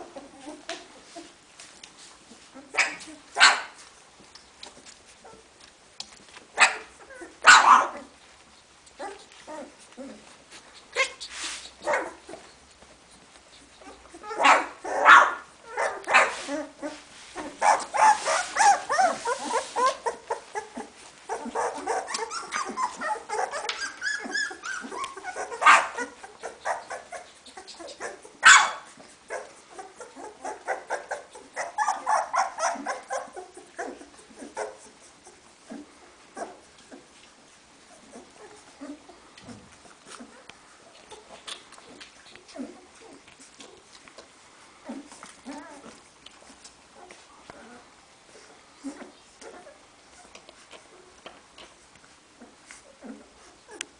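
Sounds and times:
puppies squealing and whimpering: 15.7s - 28.4s, 29.3s - 37.0s.

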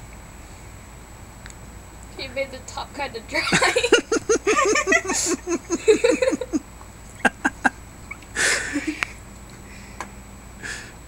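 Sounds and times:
person laughing: 3.4s - 6.6s, 7.2s - 7.8s, 8.4s - 9.2s
breathy bursts: 8.4s - 9.1s, 10.6s - 11.0s.

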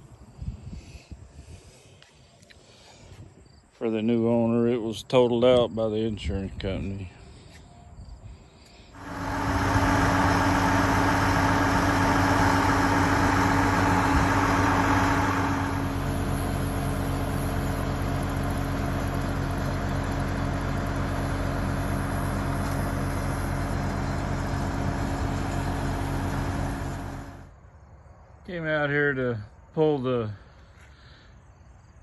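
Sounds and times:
crane engine running: 7.3s - 27.6s.

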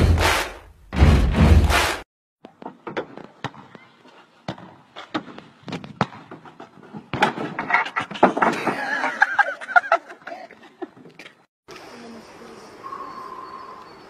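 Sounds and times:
person laughing: 8.5s - 11.0s.

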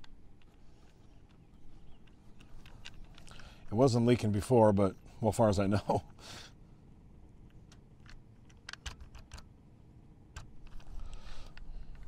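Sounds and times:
light plastic clicks: 0.0s - 3.7s, 7.4s - 9.5s, 10.3s - 12.0s.

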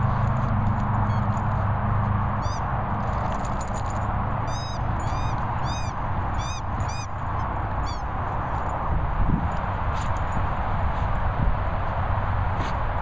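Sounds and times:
short high squeaks: 0.0s - 8.1s
wind buffeting microphone: 4.1s - 13.0s.

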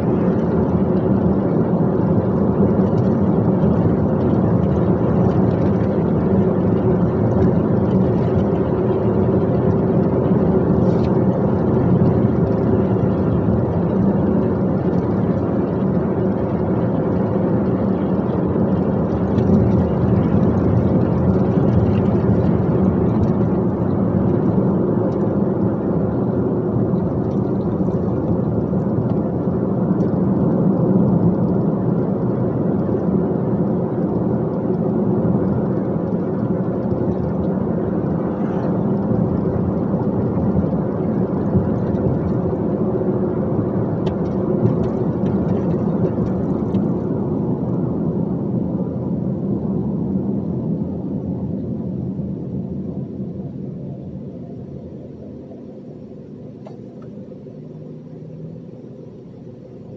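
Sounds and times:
road noise: 0.0s - 59.9s.

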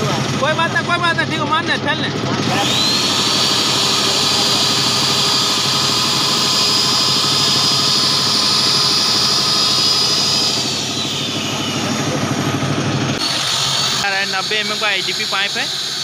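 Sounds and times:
electric facing tool whining: 0.0s - 16.0s.

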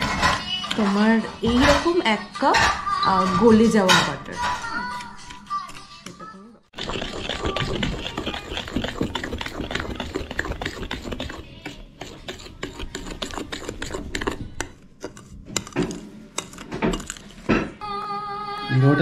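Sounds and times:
metal spoon stirring batter in bowl: 6.7s - 17.5s.

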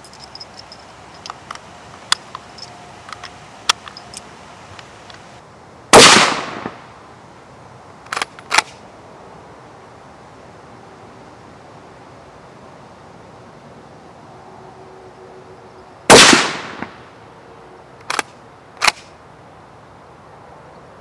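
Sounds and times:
cartridges clicking into magazine: 0.0s - 5.2s, 8.1s - 8.8s, 18.0s - 19.1s
rifle bolt metallic clacks: 0.0s - 5.3s, 8.1s - 8.8s, 18.0s - 19.1s
suppressed rifle shot: 5.9s - 6.8s, 16.1s - 17.0s.

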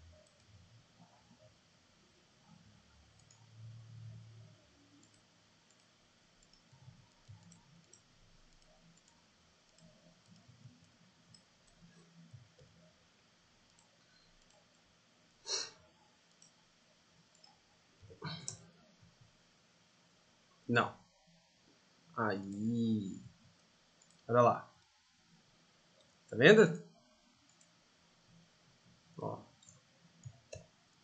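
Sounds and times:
computer mouse clicks: 0.1s - 1.4s, 3.2s - 4.2s, 5.0s - 12.8s, 13.6s - 14.7s, 16.3s - 16.6s, 17.3s - 17.6s, 23.6s - 24.3s, 27.5s - 27.8s, 29.5s - 30.7s.

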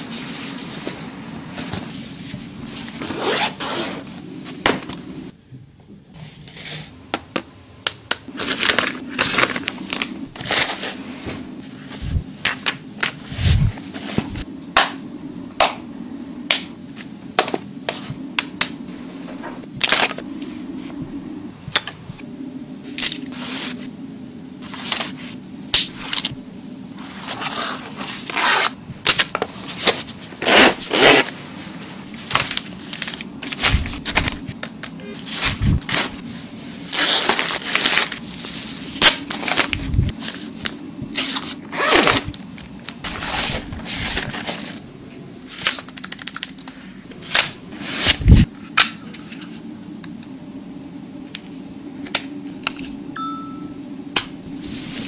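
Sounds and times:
packaging and fabric rustling: 8.3s - 14.4s, 35.2s - 44.9s.

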